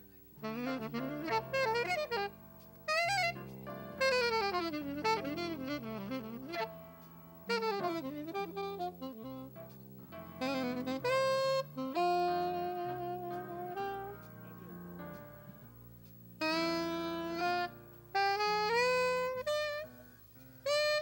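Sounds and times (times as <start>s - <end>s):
saxophone playing jazz runs: 0.0s - 21.0s.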